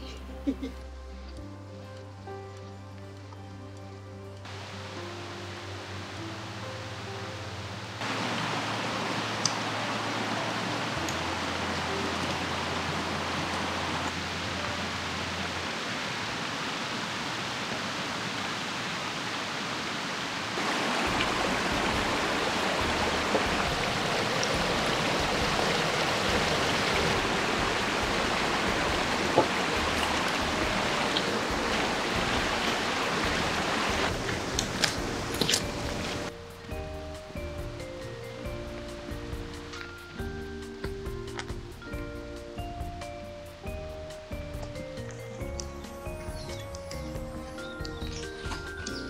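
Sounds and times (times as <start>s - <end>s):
brook rushing over stones: 8.0s - 36.4s.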